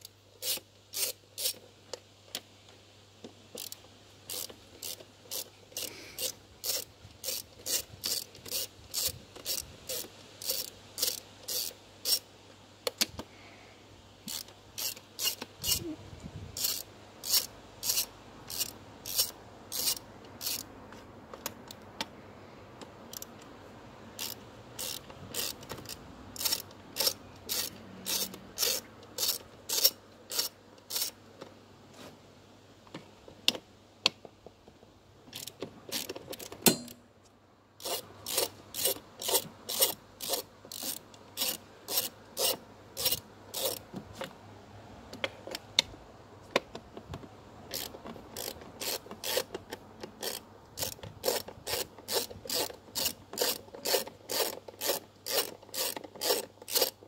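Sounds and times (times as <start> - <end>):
socket ratchet clicking: 0.4 - 1.6, 3.6 - 12.2, 14.3 - 15.8, 16.6 - 20.7, 24.2 - 31.2, 37.8 - 43.8, 47.7 - 57.0.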